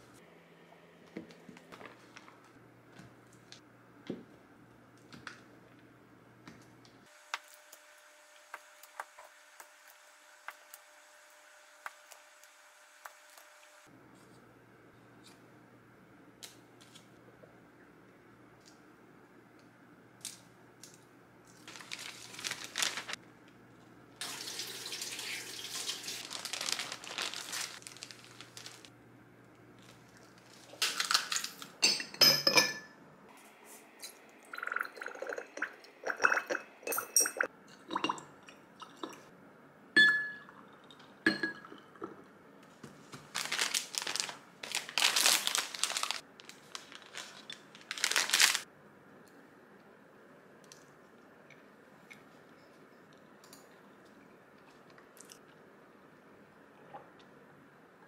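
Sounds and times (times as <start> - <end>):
foil cup crinkling: 21.5 - 23.2, 24.4 - 28.9, 42.9 - 48.6
paper wrapping rustling: 21.5 - 23.2, 24.2 - 28.9, 42.8 - 48.7
glass clinks: 31.8 - 32.9, 40.0 - 40.5
water poured into a glass: 34.5 - 36.6.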